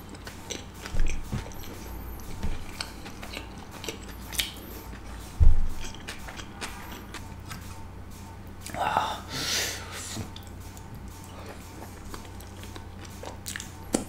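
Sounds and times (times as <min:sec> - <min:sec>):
chewing with wet mouth clicks: 0:00.0 - 0:07.8, 0:10.3 - 0:14.0
low thump: 0:05.4 - 0:05.8.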